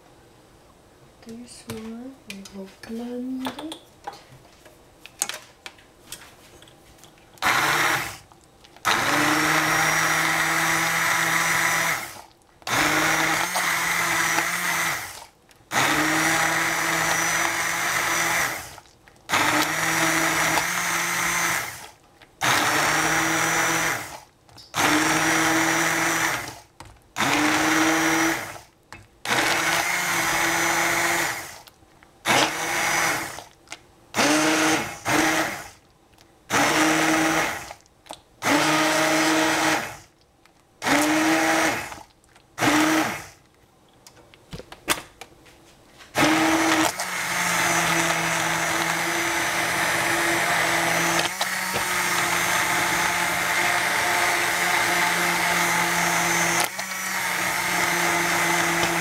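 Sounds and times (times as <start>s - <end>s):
immersion blender motor whirring: 7.4s - 8.2s, 8.8s - 28.7s, 29.3s - 31.7s, 32.3s - 33.5s, 34.2s - 35.8s, 36.5s - 37.8s, 38.4s - 40.1s, 40.8s - 43.4s, 46.2s - 59.0s.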